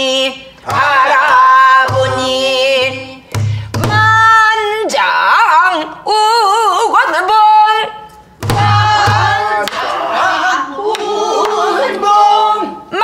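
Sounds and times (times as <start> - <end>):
woman singing with vibrato: 0.0 - 13.0
barrel drum strokes: 8.4 - 9.5.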